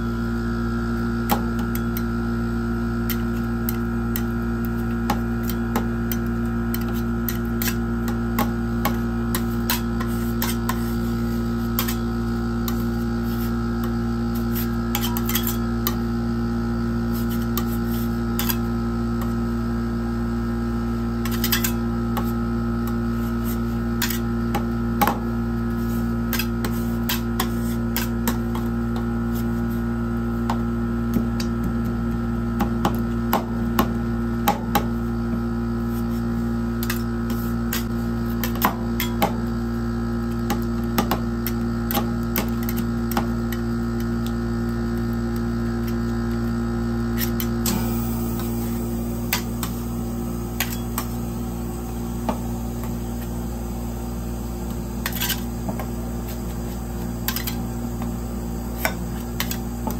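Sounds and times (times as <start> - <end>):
cold plate machine humming: 0.0 - 59.9.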